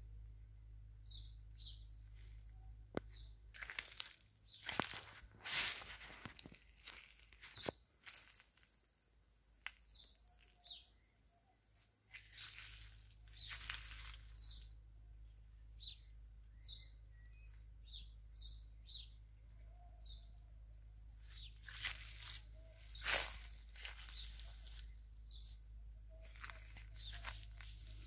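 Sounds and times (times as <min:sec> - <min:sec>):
small birds chirping: 0:00.0 - 0:28.0
leaves rustling: 0:03.5 - 0:08.7, 0:12.1 - 0:14.6, 0:21.3 - 0:25.6, 0:26.2 - 0:28.0.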